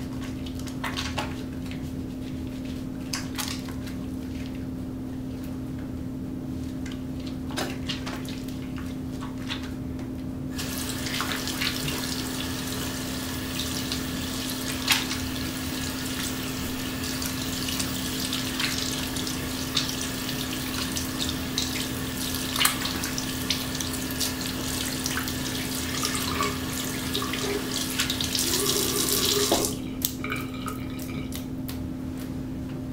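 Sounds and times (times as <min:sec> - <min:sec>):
soapy hands rubbing together: 0:00.1 - 0:05.5, 0:10.6 - 0:31.5
water running from faucet: 0:10.5 - 0:31.4.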